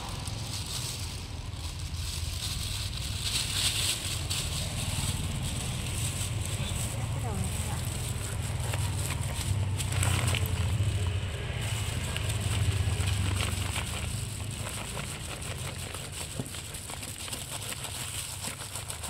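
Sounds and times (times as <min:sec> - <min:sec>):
low rumble: 0:00.0 - 0:14.6.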